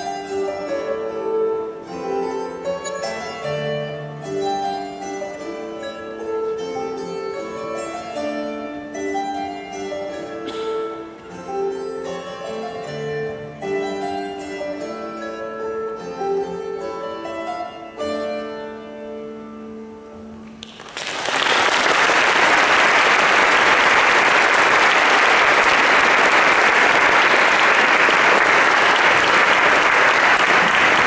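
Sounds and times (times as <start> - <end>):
plucked zithers playing: 0.0 - 20.6
audience applause: 20.6 - 31.0.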